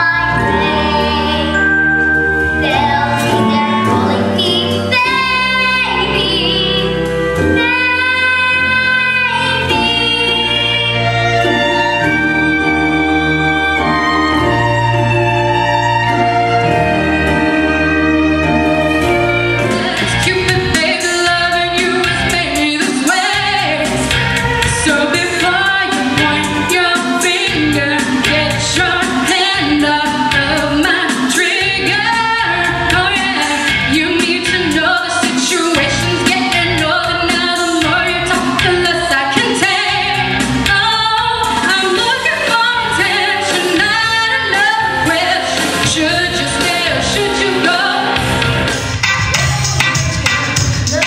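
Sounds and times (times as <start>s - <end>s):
woman singing into microphone: 0.0s - 1.7s, 2.6s - 12.0s, 19.6s - 48.5s
recorded backing track: 0.0s - 51.0s.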